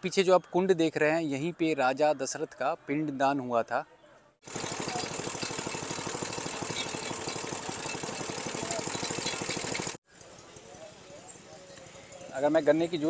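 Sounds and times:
small petrol engine running: 4.5 - 12.8.

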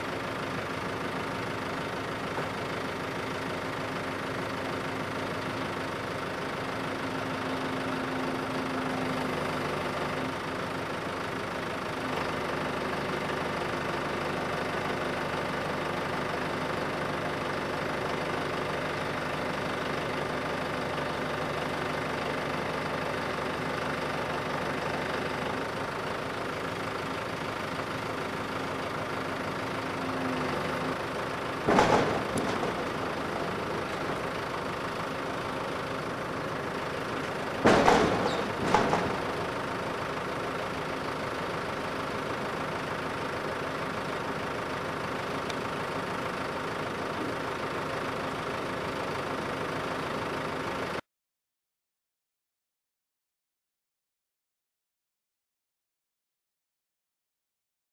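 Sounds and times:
tractor engine idling: 0.0 - 51.0.

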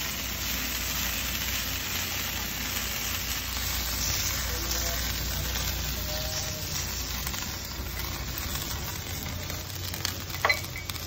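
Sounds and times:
liquor flambeing: 0.0 - 11.0
meat sizzling on hot stone: 0.0 - 11.0.

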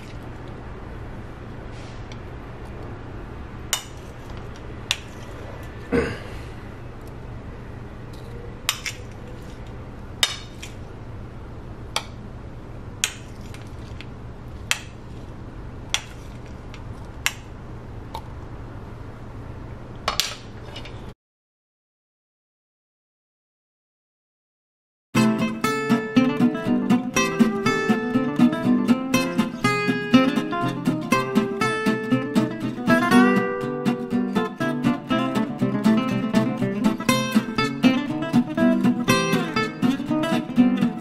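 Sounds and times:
steady low hum: 0.0 - 21.1.

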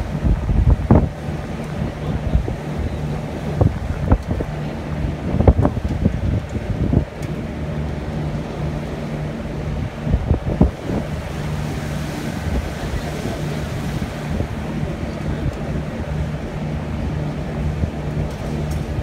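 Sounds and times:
boat engine droning: 0.0 - 19.0
water rushing past hull: 0.0 - 19.0
wind buffeting microphone: 0.0 - 19.0.

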